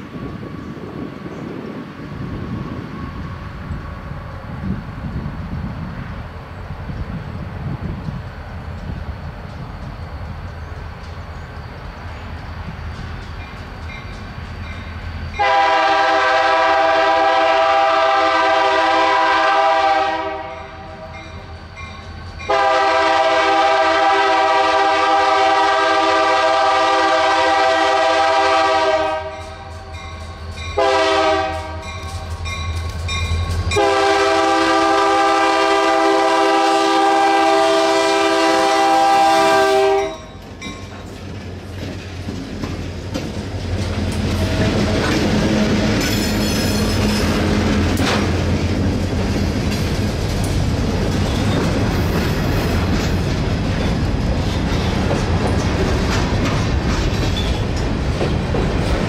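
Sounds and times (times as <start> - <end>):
passing train rumble: 0.0 - 59.0
locomotive horn blasts: 15.4 - 21.3, 22.5 - 29.6, 30.8 - 32.2, 33.7 - 40.3.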